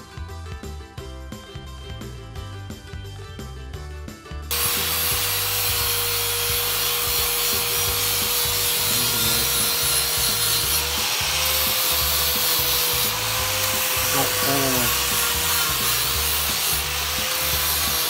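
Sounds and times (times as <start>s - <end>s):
angle grinder sanding steel: 4.5s - 18.0s.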